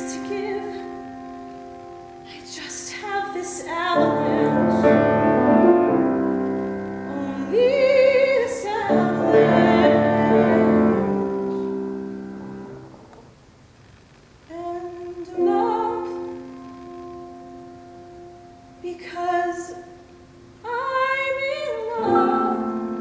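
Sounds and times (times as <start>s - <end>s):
woman singing: 0.0s - 1.2s, 2.2s - 5.5s, 7.0s - 11.8s, 14.5s - 16.4s, 18.8s - 23.0s
piano chords: 0.0s - 13.5s, 14.5s - 23.0s.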